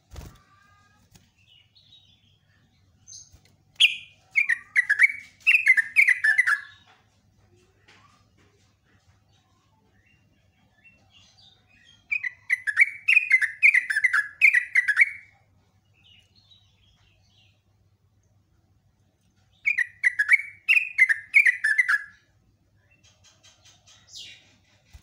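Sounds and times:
bird singing falling notes: 0:03.1 - 0:06.8.

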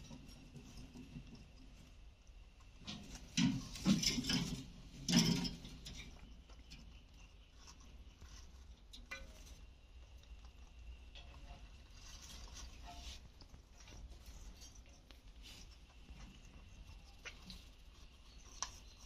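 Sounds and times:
scraping and rattling on wire cage: 0:02.8 - 0:06.3.

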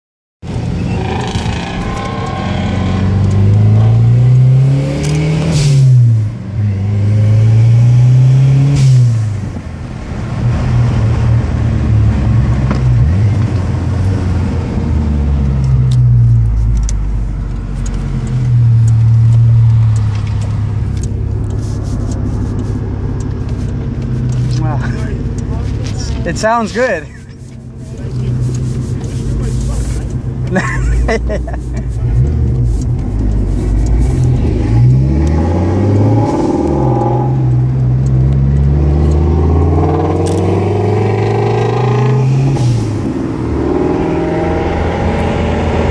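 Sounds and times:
car engine accelerating: 0:00.4 - 0:45.9.

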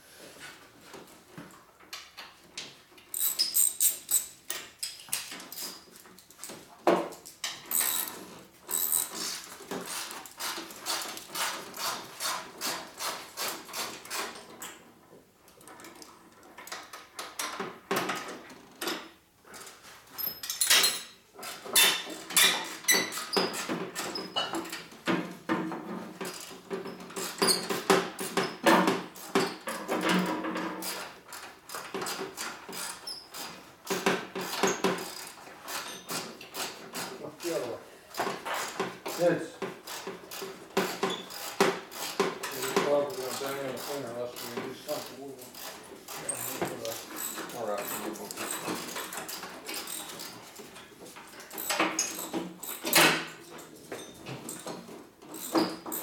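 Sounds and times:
ratchet wrench clicking: 0:03.1 - 0:04.3, 0:07.7 - 0:08.1, 0:08.7 - 0:09.2.

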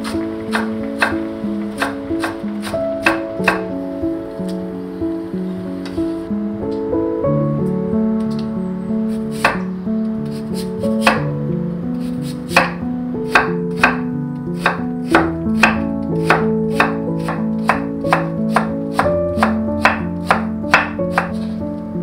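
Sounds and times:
acoustic guitar music: 0:00.0 - 0:22.0
knife chopping on wooden board: 0:00.5 - 0:01.2, 0:01.8 - 0:03.6, 0:09.3 - 0:09.6, 0:12.0 - 0:14.0, 0:14.6 - 0:21.4.

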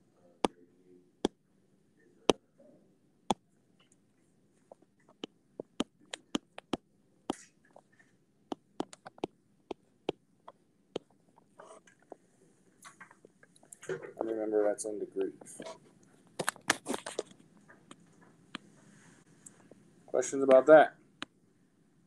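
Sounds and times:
stylus tapping on glass screen: 0:04.7 - 0:07.4, 0:08.5 - 0:11.5.

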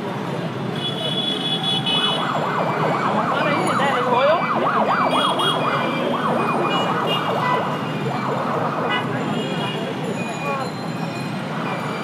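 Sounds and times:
street traffic: 0:00.0 - 0:12.0
electronic siren yelping: 0:02.2 - 0:09.1.

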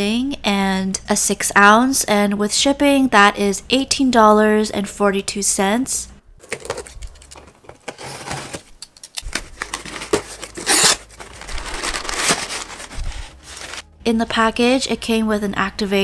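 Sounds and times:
paper packing crinkling: 0:06.4 - 0:13.9
cardboard box flaps opening: 0:09.4 - 0:13.8.

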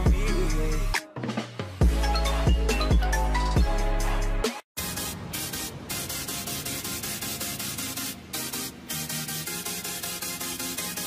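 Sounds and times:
deep bass line: 0:00.0 - 0:01.0, 0:01.8 - 0:04.5
electronic music: 0:01.8 - 0:11.0.

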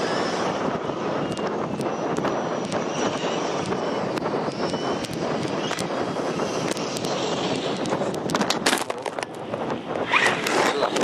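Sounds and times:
electric motor whine: 0:00.0 - 0:08.4
drivetrain and tyre noise: 0:00.0 - 0:11.0
small clicks: 0:03.6 - 0:05.9.

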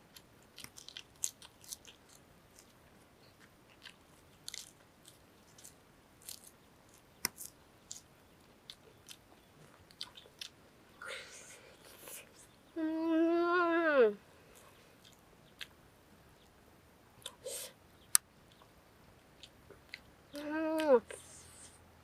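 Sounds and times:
chewing and crunching: 0:00.0 - 0:10.6, 0:14.4 - 0:15.8, 0:18.0 - 0:21.8
small crackles and clicks: 0:00.0 - 0:10.6.

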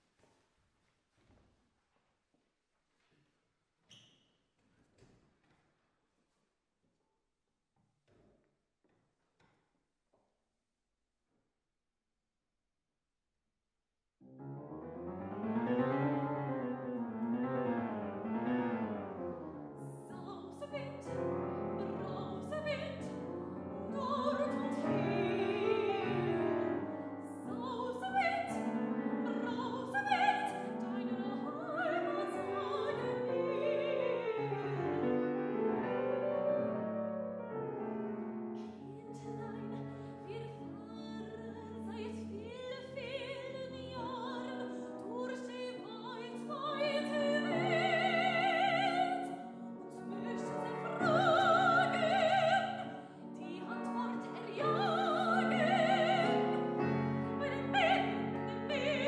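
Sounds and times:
piano arpeggios: 0:14.4 - 0:38.6, 0:46.3 - 0:59.0
woman singing with vibrato: 0:19.9 - 0:34.5, 0:38.8 - 0:59.0.

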